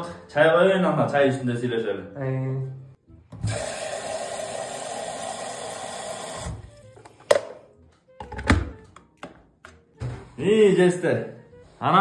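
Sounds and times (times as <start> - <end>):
tap water running into kettle: 3.4 - 6.6.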